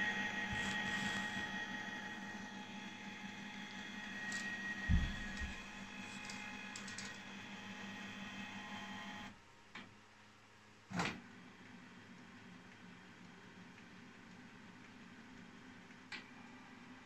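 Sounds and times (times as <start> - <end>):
inkjet printer whirring: 0.0 - 9.4.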